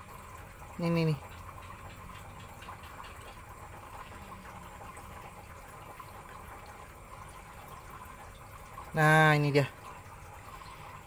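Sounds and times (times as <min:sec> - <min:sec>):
small ticks: 0:01.1 - 0:04.5
ladle moving in water: 0:09.7 - 0:11.0.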